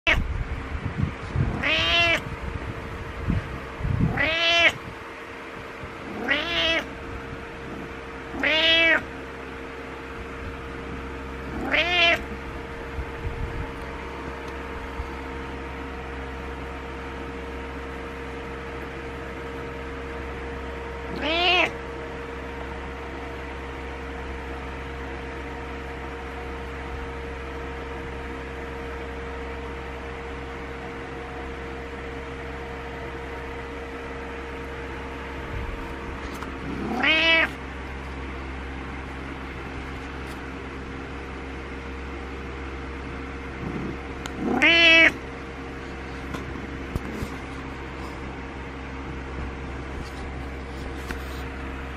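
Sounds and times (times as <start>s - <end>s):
cat meowing: 0.0s - 0.3s, 1.5s - 2.3s, 4.1s - 4.8s, 6.1s - 7.0s, 7.7s - 9.1s, 11.5s - 12.4s, 21.1s - 21.8s, 36.6s - 37.6s, 44.3s - 45.2s
steady background hum: 0.0s - 51.9s.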